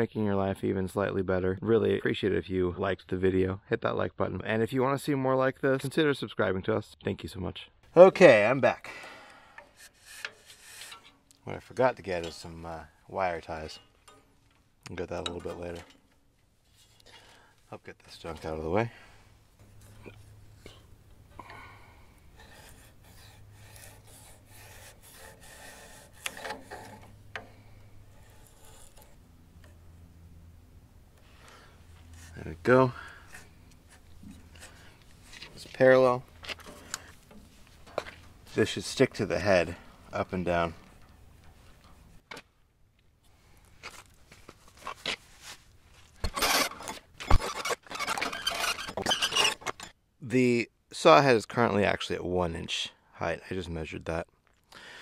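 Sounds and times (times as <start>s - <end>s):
hands rubbing and scraping metal: 9.6s - 14.2s, 22.3s - 29.8s, 31.9s - 42.2s, 43.8s - 49.9s.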